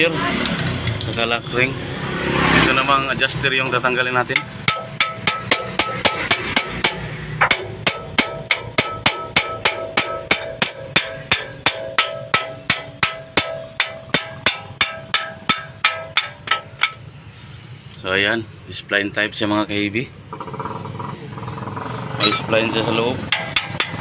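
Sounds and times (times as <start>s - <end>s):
hammer striking metal: 4.2s - 17.1s, 22.2s - 24.0s.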